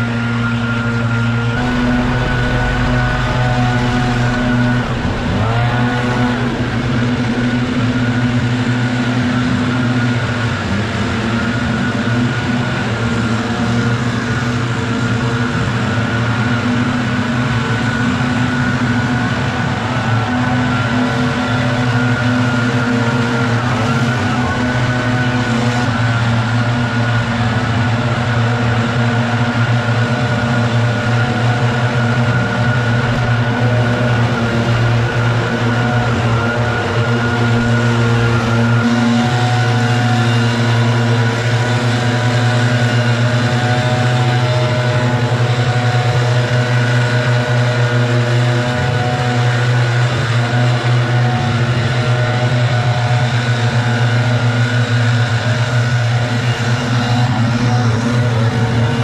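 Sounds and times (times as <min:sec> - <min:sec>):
leaf blowers running: 0:00.0 - 0:59.0.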